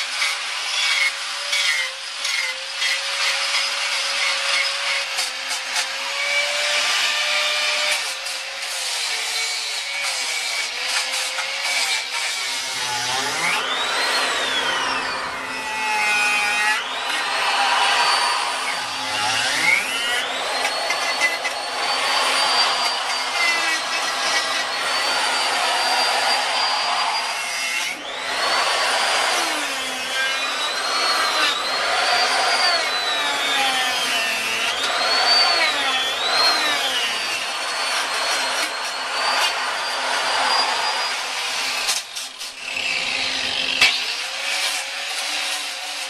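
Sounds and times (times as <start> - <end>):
electric grinder grinding wood: 0.0 - 46.0.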